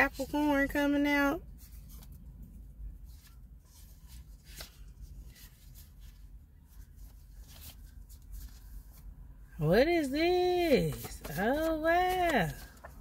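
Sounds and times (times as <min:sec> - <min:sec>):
low steady hum: 0:00.0 - 0:13.0
cards shuffling: 0:03.1 - 0:06.2, 0:10.5 - 0:13.0.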